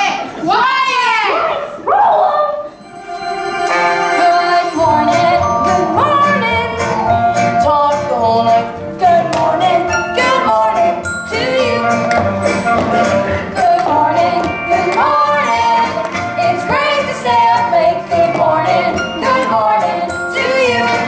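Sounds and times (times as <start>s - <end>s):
instrumental accompaniment: 2.8s - 21.0s
young voices singing: 3.6s - 7.0s, 7.6s - 21.0s.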